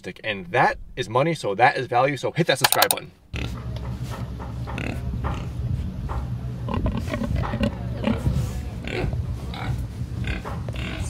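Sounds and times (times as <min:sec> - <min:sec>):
pigs grunting: 0:04.7 - 0:05.5, 0:06.7 - 0:11.0.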